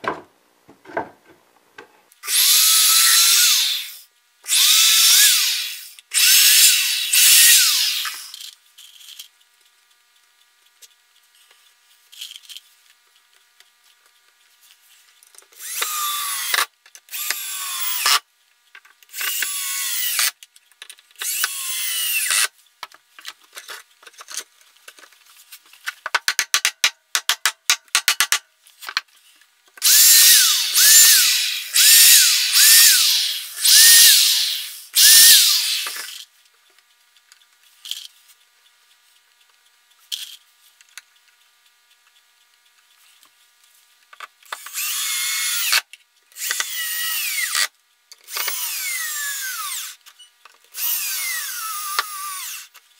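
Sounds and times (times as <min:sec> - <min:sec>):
power drill driving screws into wood: 0:02.2 - 0:08.5, 0:15.6 - 0:18.2, 0:19.1 - 0:20.4, 0:21.2 - 0:22.5, 0:29.8 - 0:36.2, 0:44.5 - 0:47.7, 0:48.3 - 0:50.0, 0:50.8 - 0:52.8
drill clicks: 0:15.6 - 0:18.2, 0:19.1 - 0:20.4, 0:21.2 - 0:22.5, 0:29.8 - 0:36.2, 0:44.4 - 0:45.8, 0:46.4 - 0:47.7, 0:48.3 - 0:50.0, 0:50.8 - 0:52.8.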